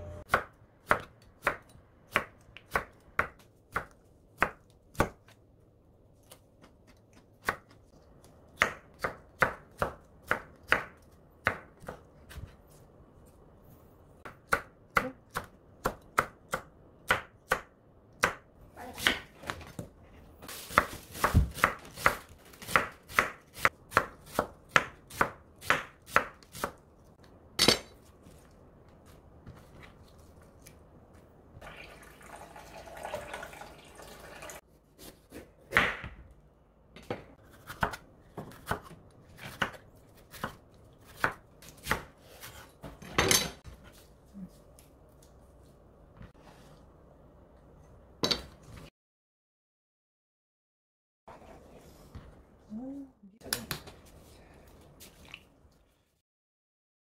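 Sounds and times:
knife chopping on wooden board: 20.7 - 26.8, 37.0 - 43.0.

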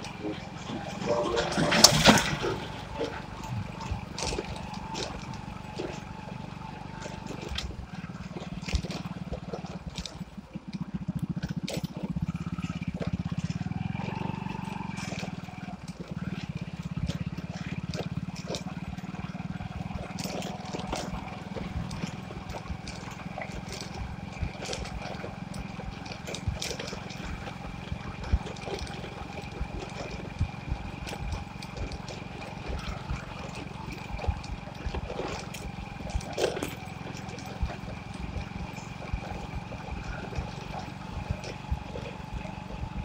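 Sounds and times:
knocks and rattles on dirt track: 0.0 - 43.0
motorcycle engine running: 0.0 - 43.0.

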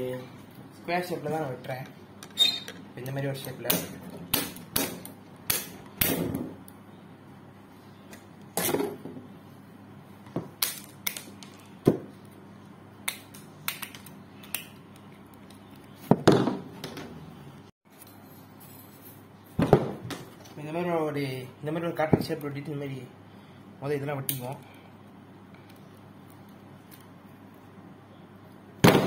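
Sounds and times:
wire cutters snipping metal: 2.5 - 6.3.

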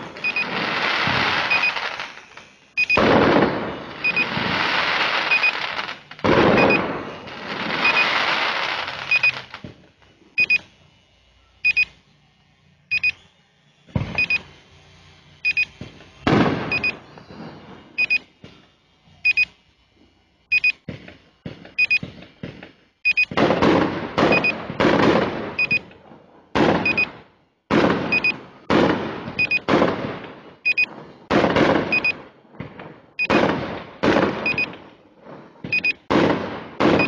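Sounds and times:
fireworks bangs and crackling: 0.0 - 10.1, 13.9 - 14.8, 15.6 - 19.2, 20.8 - 37.0
electronic double beep: 0.2 - 0.6, 1.4 - 2.0, 2.8 - 3.0, 3.9 - 4.4, 5.2 - 5.6, 6.5 - 6.9, 7.8 - 8.3, 9.0 - 9.5, 10.4 - 10.7, 11.6 - 12.0, 12.9 - 13.2, 14.1 - 14.5, 15.4 - 15.8, 16.7 - 17.1, 18.0 - 18.3, 19.2 - 19.5, 20.5 - 20.8, 21.8 - 22.0, 23.1 - 23.4, 24.3 - 24.6, 25.6 - 25.9, 26.8 - 27.1, 28.1 - 28.4, 29.4 - 29.7, 30.7 - 30.9, 31.9 - 32.2, 33.2 - 33.4, 34.4 - 34.8, 35.7 - 36.0.

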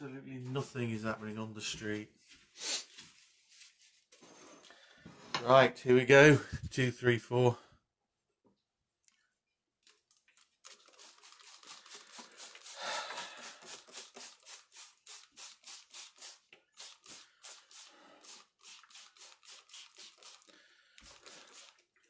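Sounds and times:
brush sweeping across paper: 2.2 - 4.6, 10.8 - 21.8.

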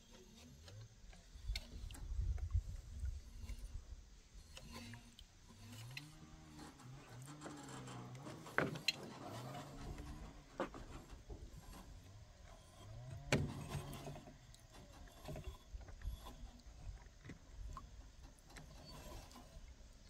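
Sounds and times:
low mechanical whine: 0.0 - 20.0.

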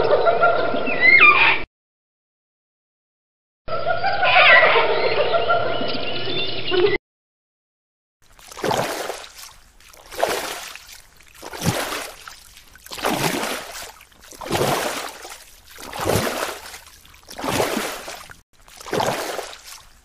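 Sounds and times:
water sloshing with low thud: 8.2 - 20.0.

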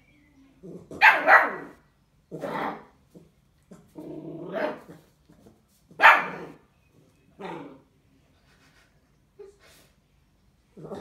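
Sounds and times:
puppy barking: 1.0 - 1.8, 6.0 - 6.6.

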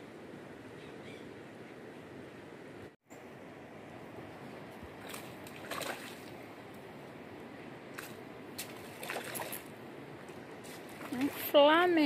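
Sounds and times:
small water splashes: 5.0 - 6.5, 7.9 - 12.0.

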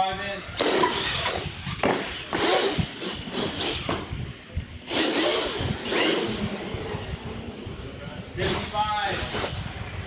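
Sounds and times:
toy truck motor whirring: 0.4 - 4.2, 4.8 - 6.9, 8.4 - 9.8.

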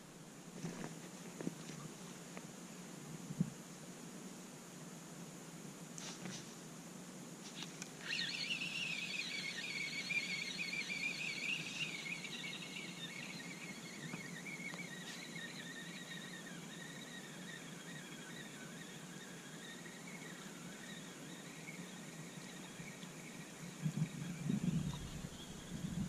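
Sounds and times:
spinning reel cranking whine: 7.6 - 26.0.

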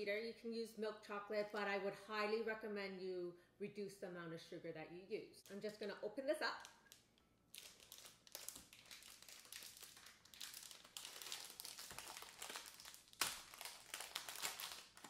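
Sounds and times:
foil wrapper crinkling: 6.6 - 15.0.

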